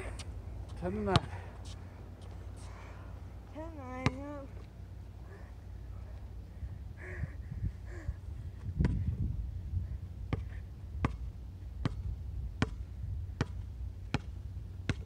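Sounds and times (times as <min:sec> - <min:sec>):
basketball bouncing on hard court: 0:04.0 - 0:04.2, 0:10.3 - 0:11.2, 0:11.8 - 0:12.8, 0:13.4 - 0:14.3.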